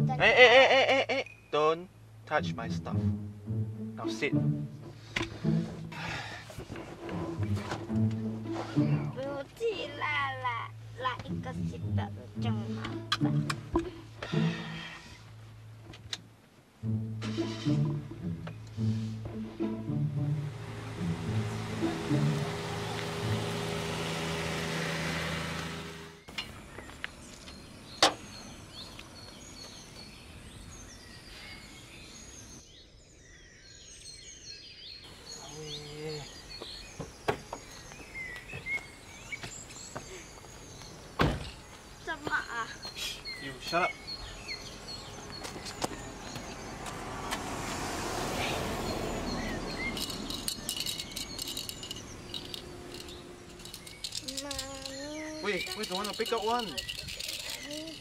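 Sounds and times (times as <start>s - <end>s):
birds chirping: 0.0s - 16.1s, 16.9s - 58.0s
background music: 2.0s - 15.8s, 16.8s - 24.6s
car passing: 2.0s - 15.8s, 16.8s - 28.8s, 43.1s - 58.0s
rapid high clicking: 49.9s - 58.0s.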